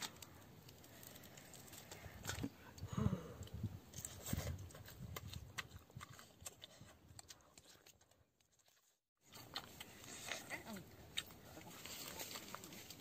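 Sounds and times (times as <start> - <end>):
meat being torn and chewed: 3.4 - 13.0.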